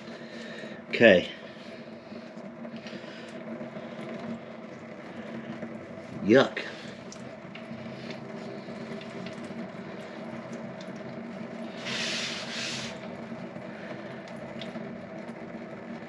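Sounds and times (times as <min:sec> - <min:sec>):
low hum: 0:00.0 - 0:16.0
oil trickling into plastic pan: 0:06.7 - 0:15.3
hiss: 0:11.7 - 0:13.0.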